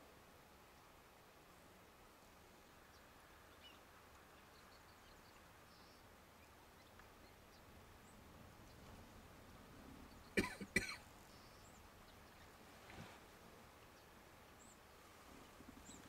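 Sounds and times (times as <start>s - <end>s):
faint outdoor ambience: 0.0s - 16.0s.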